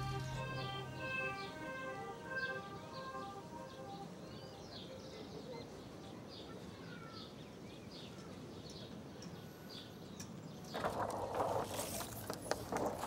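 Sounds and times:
birds chirping: 0:00.0 - 0:06.5
faint outdoor background: 0:00.0 - 0:13.0.

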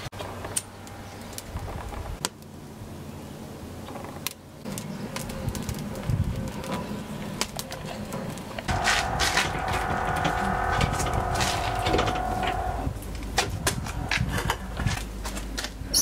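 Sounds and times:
low rumble of flames: 0:01.2 - 0:15.9
wood fire crackling: 0:03.8 - 0:15.9.

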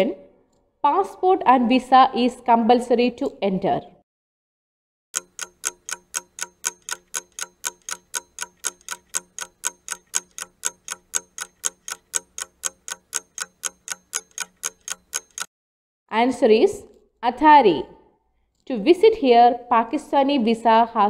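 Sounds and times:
rapid clock ticking: 0:05.2 - 0:15.5.

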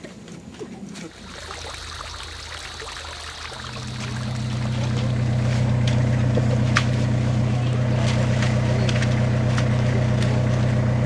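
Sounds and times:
low mechanical hum: 0:00.2 - 0:11.0
water trickling into pond: 0:01.1 - 0:06.5.

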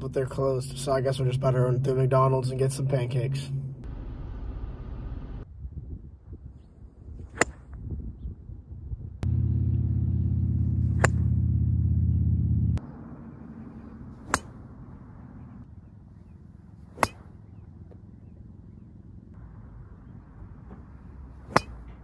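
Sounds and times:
loud low rumble: 0:01.3 - 0:05.8, 0:09.2 - 0:15.7
golf club striking ball: 0:09.2 - 0:12.4, 0:14.2 - 0:14.6, 0:16.8 - 0:17.4, 0:21.5 - 0:22.0.

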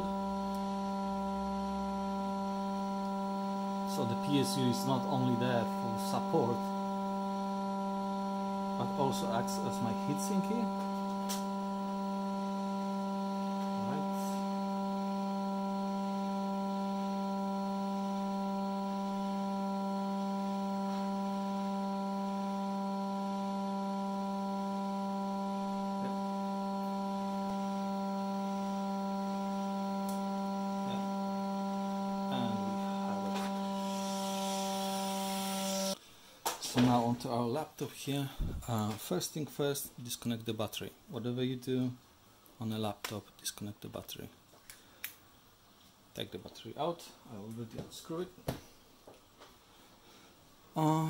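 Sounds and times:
hot air blower hum: 0:00.0 - 0:37.0, 0:38.2 - 0:39.0, 0:49.7 - 0:51.0.

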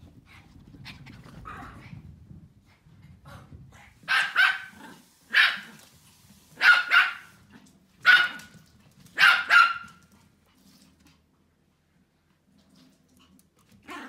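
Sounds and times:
small dog barking: 0:04.0 - 0:05.8, 0:06.6 - 0:07.4, 0:08.0 - 0:08.5, 0:09.2 - 0:10.0.

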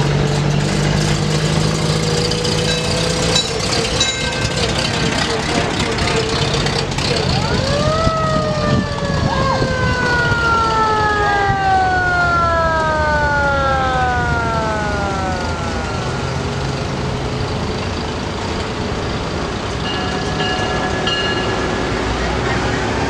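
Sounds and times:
truck engines rumbling: 0:00.0 - 0:23.0
mechanical sirens winding: 0:02.0 - 0:18.8.

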